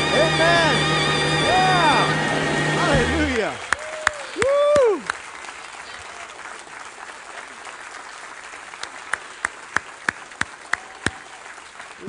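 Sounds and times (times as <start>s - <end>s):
audience applauding: 0.0s - 12.0s
one person clapping: 3.3s - 12.0s.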